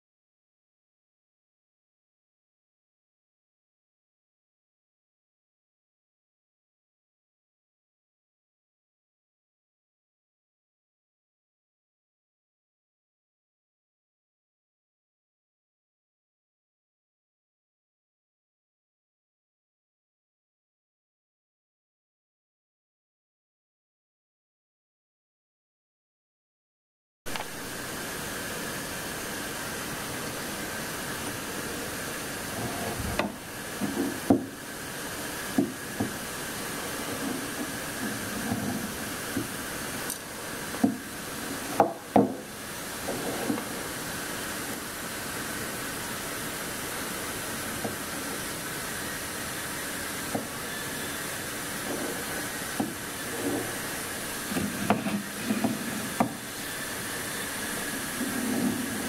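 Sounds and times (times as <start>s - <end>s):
steady hiss: 27.3s - 59.0s.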